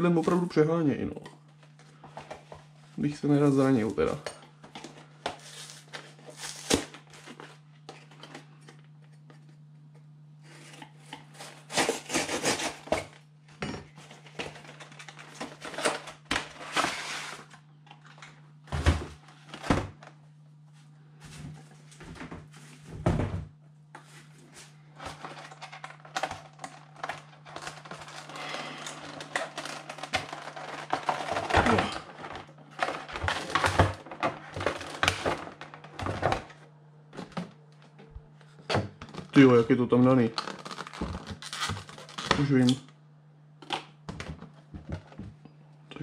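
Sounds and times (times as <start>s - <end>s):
cardboard and plastic crinkling: 3.4s - 9.3s, 13.9s - 18.3s, 24.1s - 36.6s, 37.2s - 42.8s
knife cutting cardboard: 11.4s - 12.9s.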